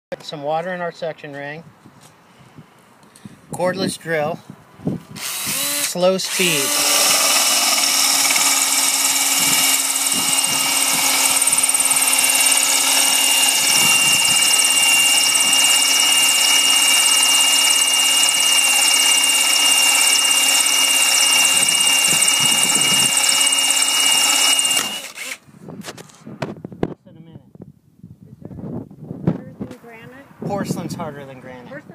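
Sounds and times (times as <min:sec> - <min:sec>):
cordless drill motor whine: 0:05.2 - 0:25.4
core bit grinding stone: 0:05.2 - 0:26.1.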